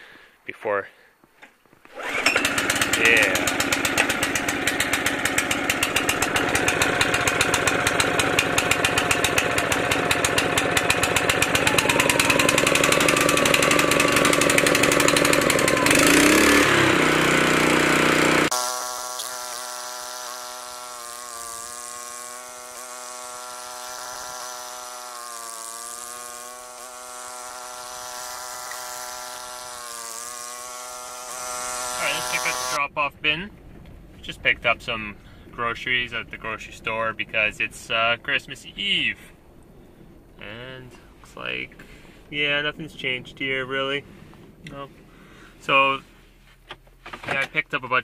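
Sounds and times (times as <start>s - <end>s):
snowblower engine running: 1.9s - 32.8s.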